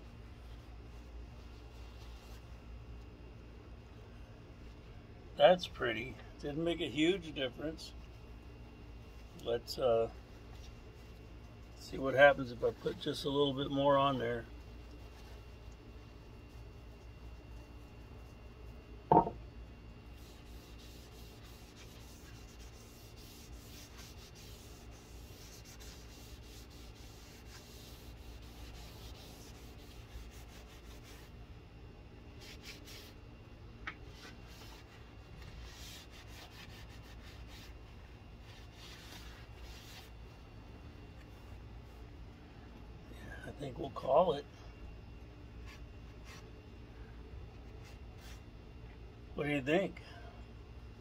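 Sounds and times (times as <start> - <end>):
sharp knock: 19.1 - 19.4
rag wiping wood: 20.1 - 31.3, 34.1 - 37.8, 38.4 - 40.1.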